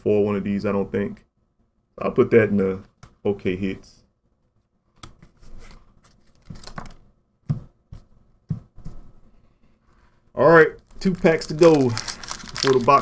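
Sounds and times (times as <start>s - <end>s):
cards being shuffled and set down: 5.0s - 7.0s.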